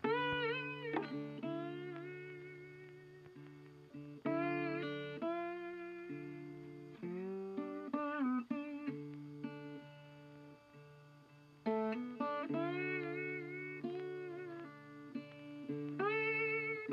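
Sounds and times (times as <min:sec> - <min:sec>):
guitar melody with bending notes: 0:00.0 - 0:16.9.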